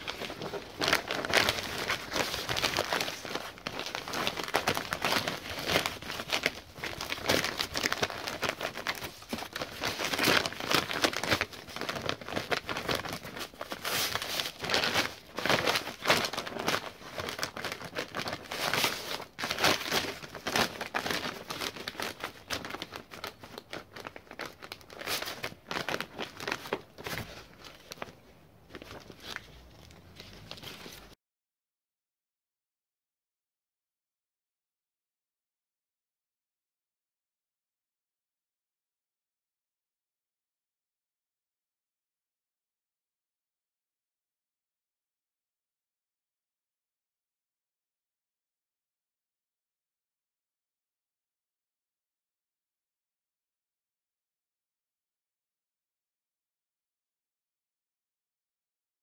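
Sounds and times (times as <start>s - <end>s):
plastic membrane crinkling: 0.0s - 31.2s.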